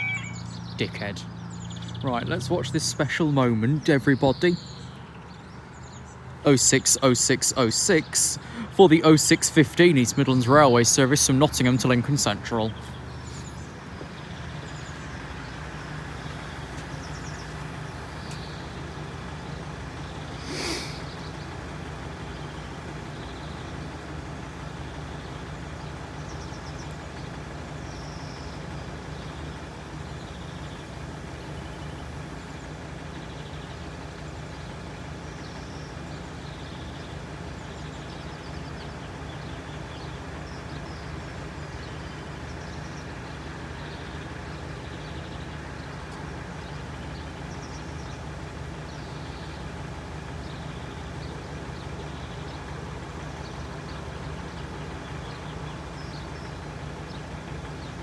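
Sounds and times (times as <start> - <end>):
faint high chirps: 0.0 - 1.8
engines idling: 0.0 - 58.0.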